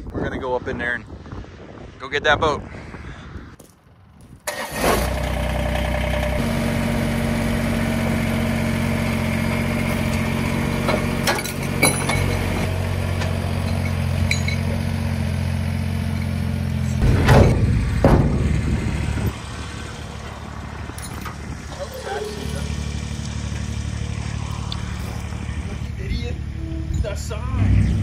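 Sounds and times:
tractor diesel engine running: 4.5 - 28.0
sharp knocks: 17.0 - 18.7.

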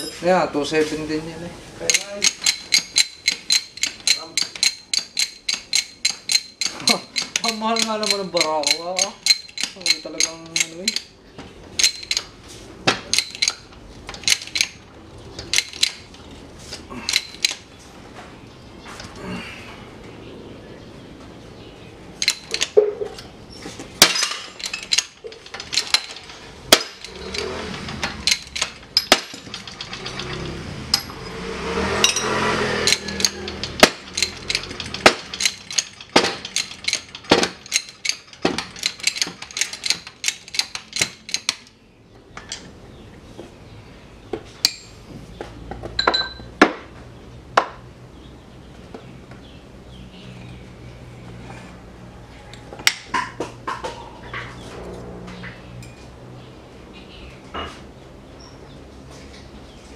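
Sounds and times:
rough grinding noise: 22.2 - 41.7, 54.2 - 56.0.

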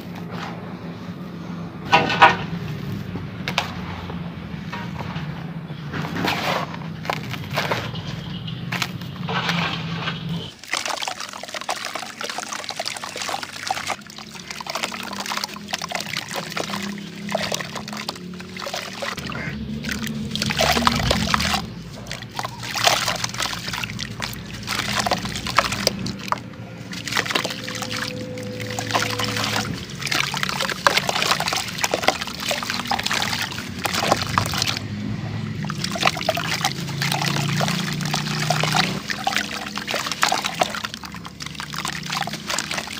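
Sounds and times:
water sloshing and splashing: 1.9 - 42.9
hands crumbling dry soil: 6.2 - 8.0
wet crumbs dropping into water: 10.5 - 34.9, 35.6 - 42.9.

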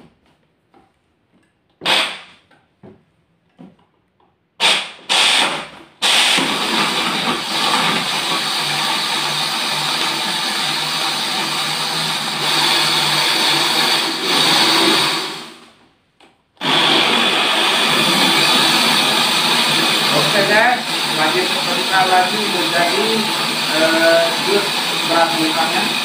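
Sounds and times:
blender grinding rice and ice: 4.7 - 15.8, 16.6 - 26.0.

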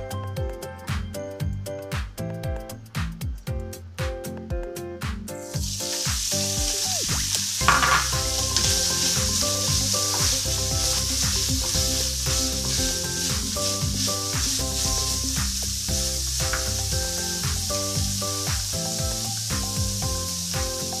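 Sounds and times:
background music: 0.0 - 21.0
meat sizzling in oil: 5.5 - 21.0
wooden spatula stirring: 5.6 - 21.0.

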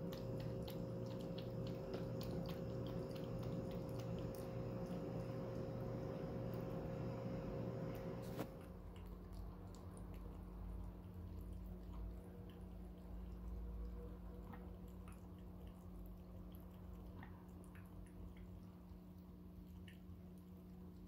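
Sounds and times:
water trickling into bowl: 0.0 - 5.9
cat lapping water: 0.0 - 21.0
low hum: 0.0 - 21.0.

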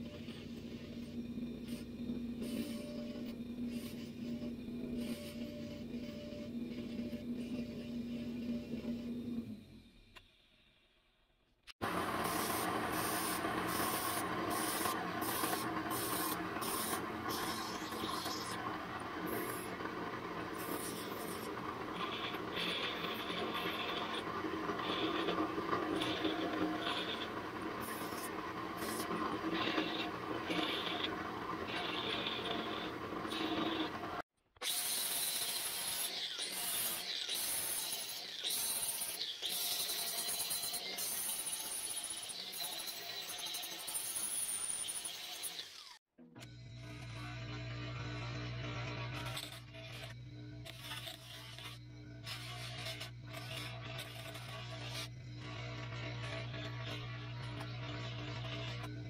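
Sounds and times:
belt grinder grinding steel: 11.8 - 46.0.

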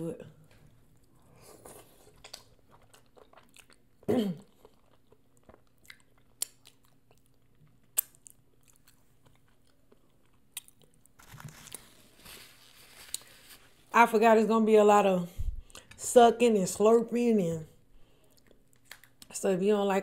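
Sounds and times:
chewing with lip smacks: 1.0 - 11.1.

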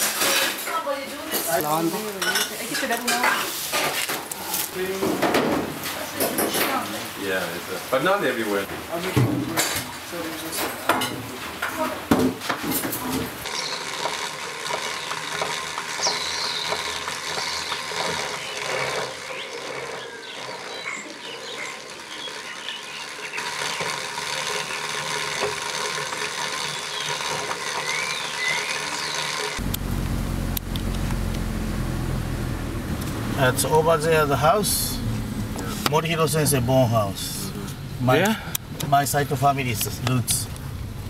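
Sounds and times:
outdoor hiss: 0.9 - 20.4
road rumble inside moving car: 29.6 - 33.5.

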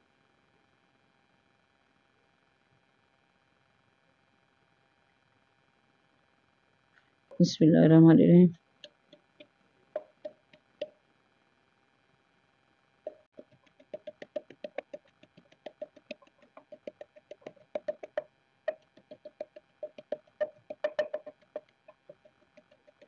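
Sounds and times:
pestle pounding in wooden mortar: 8.8 - 10.9, 13.1 - 23.0.

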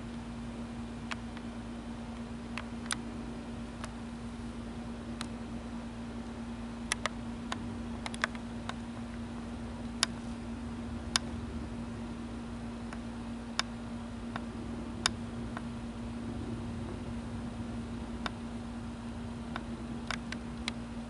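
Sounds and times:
distant jet plane rumble: 0.0 - 21.0
steady hum: 0.0 - 21.0
sharp clicks: 2.5 - 3.0, 6.8 - 8.9, 19.5 - 20.8.

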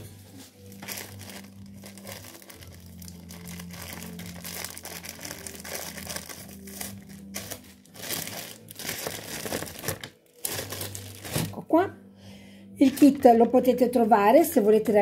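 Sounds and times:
plastic bag crinkling: 0.6 - 11.6.

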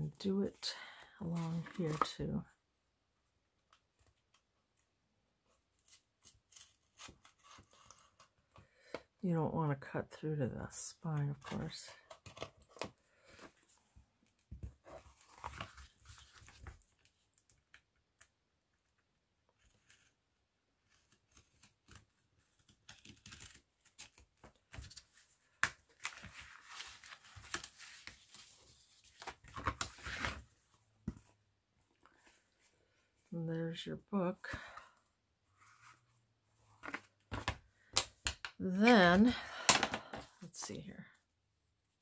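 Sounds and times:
paper rustling: 1.4 - 2.2, 21.0 - 31.4.

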